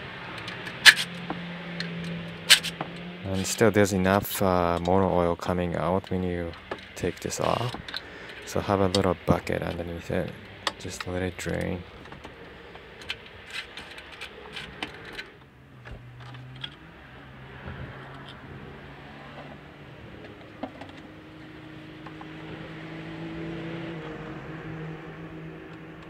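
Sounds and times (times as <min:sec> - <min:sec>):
hand tools clicking on metal: 0:00.3 - 0:03.1.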